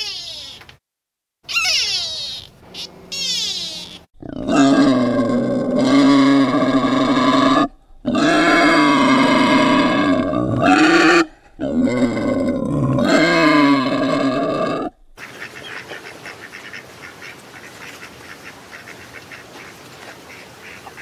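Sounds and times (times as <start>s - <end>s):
wild boar grunting calls: 1.6s - 15.2s.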